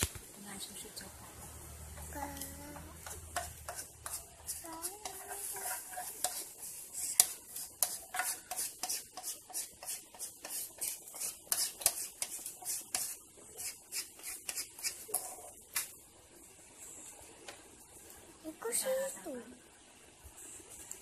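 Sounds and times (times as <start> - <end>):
wood fire crackling: 0.0 - 19.4
faint hiss: 0.0 - 21.0.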